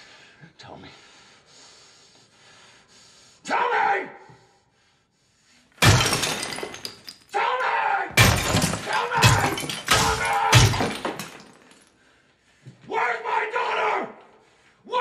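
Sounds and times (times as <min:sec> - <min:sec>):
breaking porcelain spraying: 0:05.8 - 0:07.2, 0:08.2 - 0:11.8
hammer smashing porcelain: 0:05.8 - 0:07.3, 0:08.1 - 0:11.9.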